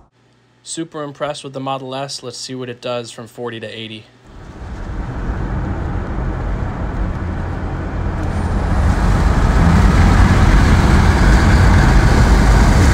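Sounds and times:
road and wind noise in car: 0:04.3 - 0:12.9.

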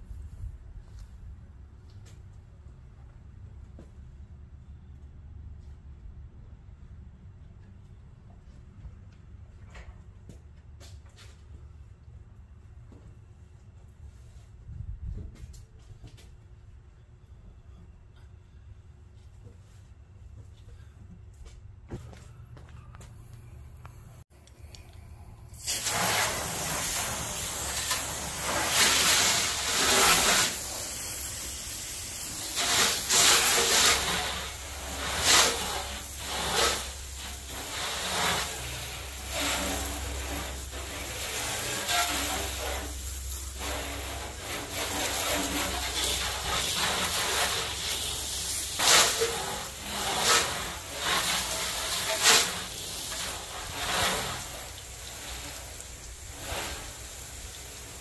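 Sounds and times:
water spray hissing on metal: 0:25.5 - 0:58.0.

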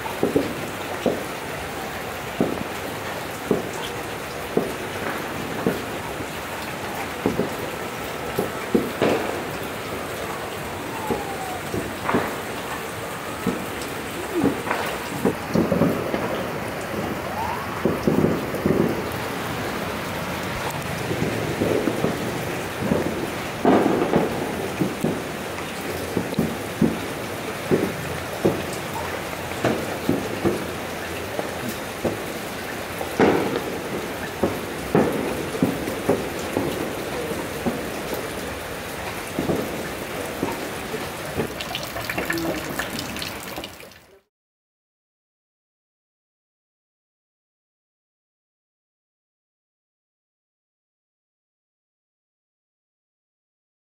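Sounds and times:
rain falling: 0:00.0 - 0:44.3
distant fireworks booms and pops: 0:00.1 - 0:43.1
firework whistle: 0:08.4 - 0:16.2, 0:17.0 - 0:18.9
drops knocking and splashing: 0:41.3 - 0:44.0.

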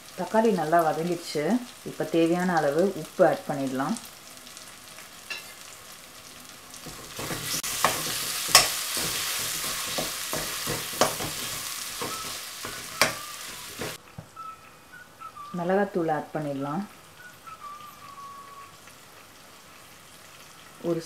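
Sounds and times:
food sizzling in oil: 0:00.0 - 0:21.0
spoon scraping a pan: 0:06.8 - 0:14.0.

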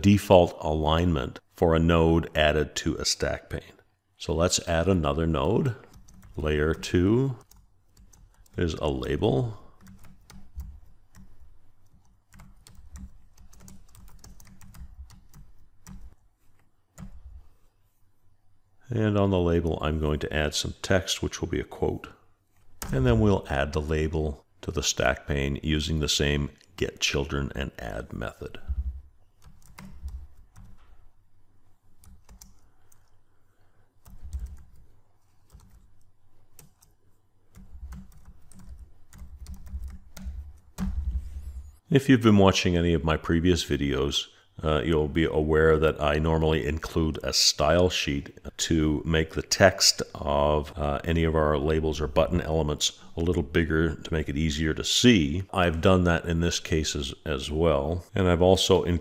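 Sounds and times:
typing on computer keyboard: 0:05.8 - 0:08.6, 0:09.7 - 0:16.2, 0:29.3 - 0:30.9, 0:32.0 - 0:33.1, 0:34.0 - 0:41.0.

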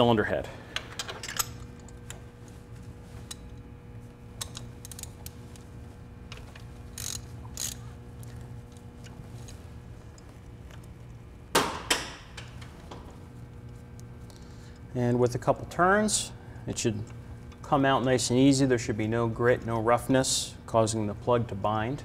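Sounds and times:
ratchet wrench clicking: 0:06.9 - 0:07.8.

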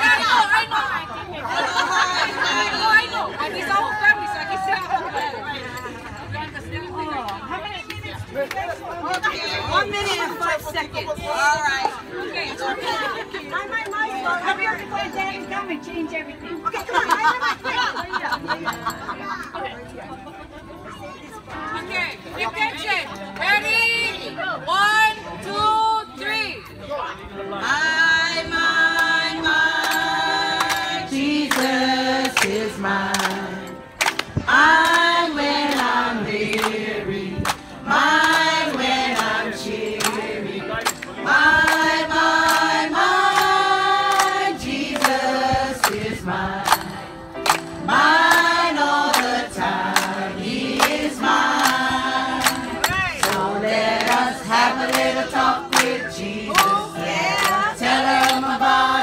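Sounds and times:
group of people singing: 0:27.6 - 0:59.0.

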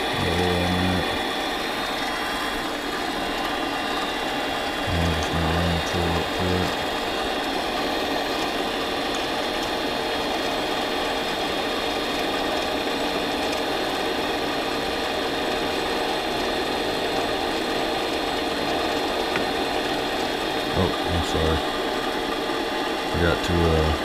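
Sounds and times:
lathe whining: 0:00.0 - 0:24.0.

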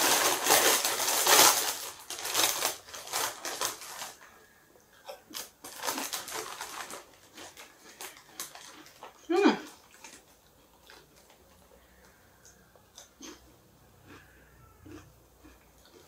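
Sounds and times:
foil crisp packet crinkling: 0:00.0 - 0:12.2
potato chips crunching: 0:00.0 - 0:16.0.

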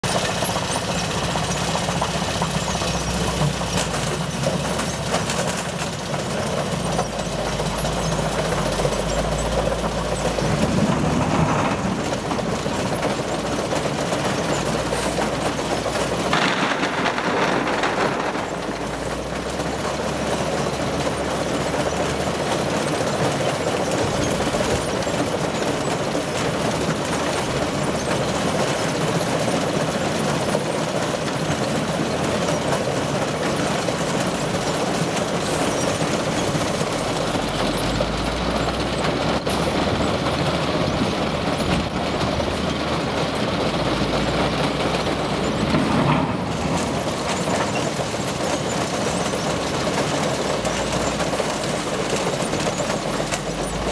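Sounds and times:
machinery mechanical din: 0:00.0 - 0:53.9
loud rush of noise: 0:05.1 - 0:22.2.

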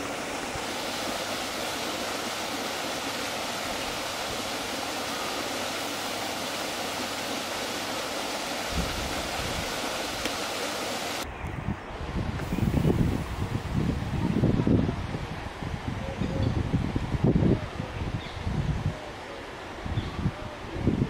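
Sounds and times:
steady rushing outdoor noise: 0:00.0 - 0:18.2
wind rumble on microphone: 0:08.7 - 0:10.2, 0:11.2 - 0:19.1, 0:19.7 - 0:21.0.

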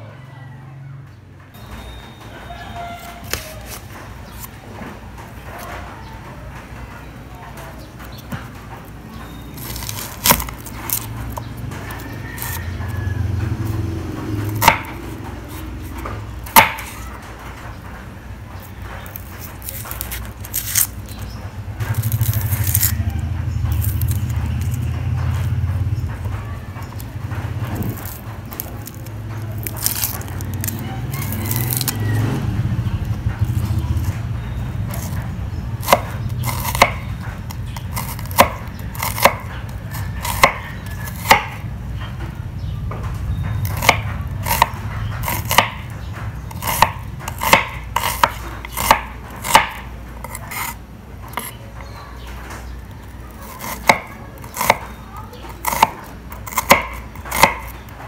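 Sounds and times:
knife chopping on cutting board: 0:09.6 - 0:17.1, 0:27.6 - 0:34.2, 0:34.9 - 0:41.6, 0:43.6 - 0:45.9, 0:46.5 - 0:51.9, 0:53.4 - 0:54.9, 0:55.5 - 0:57.9.

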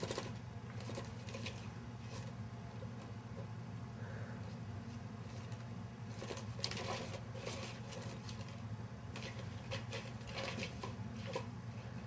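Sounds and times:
cat scratching at toy: 0:00.0 - 0:03.0, 0:05.2 - 0:11.5
steady low hum: 0:00.0 - 0:12.0.

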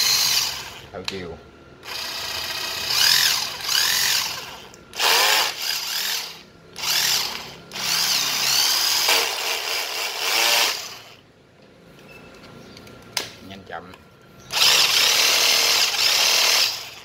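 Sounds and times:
cordless drill motor whine: 0:00.0 - 0:00.8, 0:01.8 - 0:11.2, 0:14.5 - 0:17.0.

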